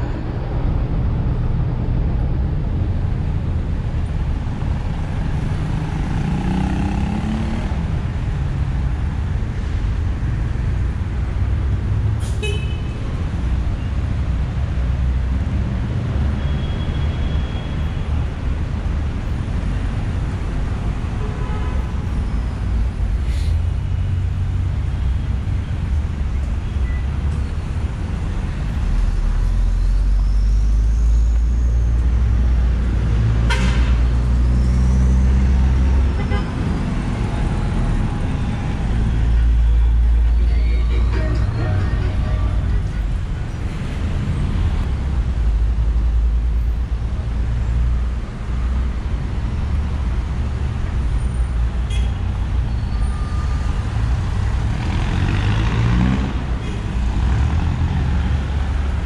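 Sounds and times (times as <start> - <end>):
road traffic rumble: 0.0 - 59.0
horn toots: 33.5 - 34.0.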